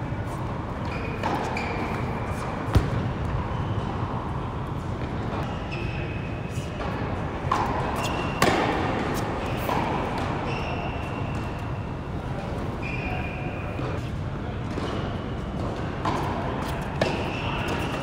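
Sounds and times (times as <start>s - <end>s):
tennis ball bouncing on hard court: 2.7s - 3.4s, 7.4s - 10.3s, 15.6s - 17.9s.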